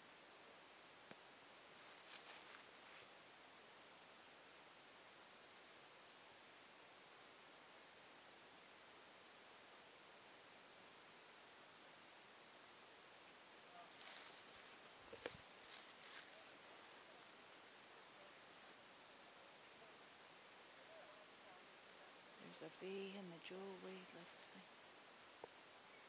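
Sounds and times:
crickets trilling: 0:00.0 - 0:03.8, 0:04.5 - 0:26.0
faint rustling: 0:01.8 - 0:03.2, 0:13.8 - 0:17.9.

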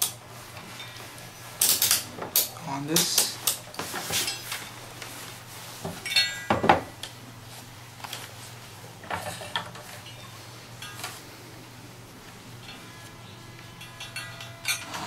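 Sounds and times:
multimeter and probes clattering: 0:01.6 - 0:04.8, 0:12.6 - 0:15.0.

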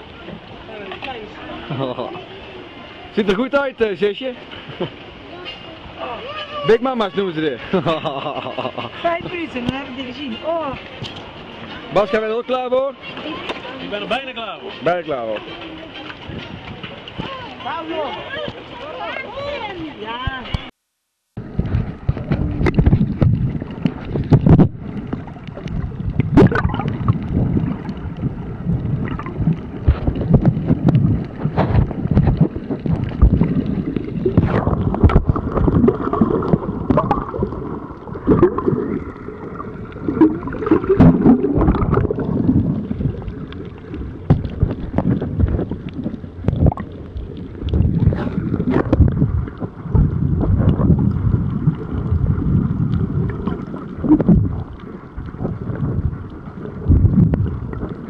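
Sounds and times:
swimming splashes and knocks: 0:00.0 - 0:20.7, 0:21.4 - 0:58.0
underwater churning water and bubbles: 0:21.4 - 0:58.0.

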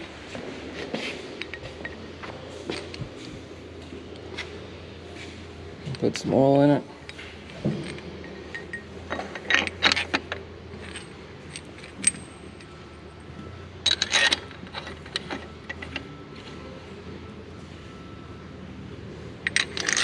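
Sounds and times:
steady low hum: 0:00.0 - 0:20.0
metallic clinks and taps: 0:01.4 - 0:03.2, 0:07.0 - 0:16.6, 0:19.4 - 0:20.0.

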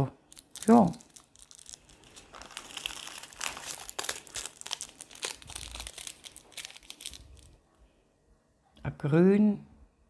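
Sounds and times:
plastic bags crinkling: 0:00.3 - 0:07.6.

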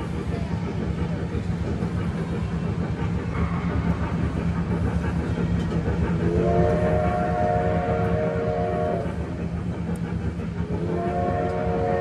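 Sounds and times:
electric train humming: 0:00.0 - 0:12.0
train whistle chord: 0:06.3 - 0:09.0, 0:11.0 - 0:12.0.

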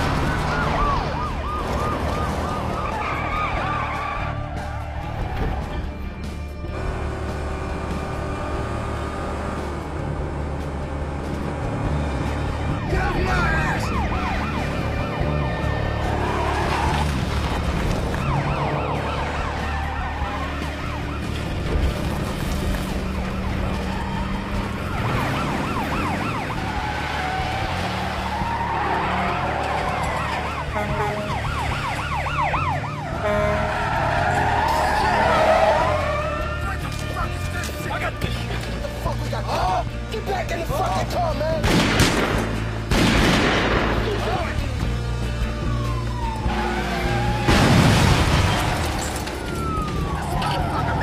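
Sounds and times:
police siren wailing: 0:00.0 - 0:06.0, 0:12.2 - 0:38.2, 0:44.3 - 0:47.7, 0:48.4 - 0:51.0
car engines running hard: 0:00.0 - 0:51.0
tyres squealing: 0:33.2 - 0:39.8.

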